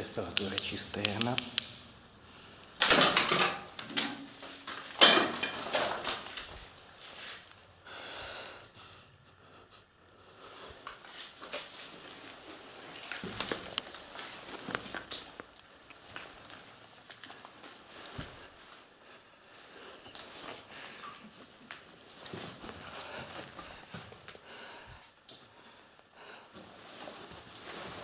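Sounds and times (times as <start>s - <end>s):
scuffing and rustling: 5.7s - 7.7s, 10.8s - 18.9s, 20.1s - 24.4s, 26.6s - 28.0s.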